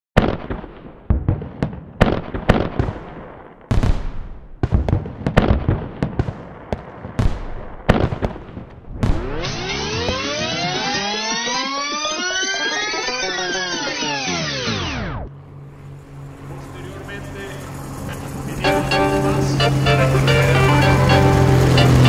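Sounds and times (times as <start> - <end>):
fireworks exploding: 0.2 - 13.0, 17.2 - 22.0
rising sweeping tone: 8.9 - 22.0.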